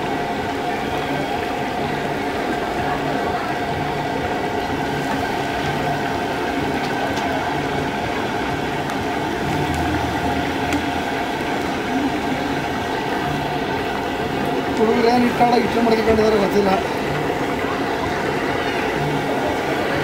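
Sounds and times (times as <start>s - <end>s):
oil sizzling and bubbling: 1.3s - 20.0s.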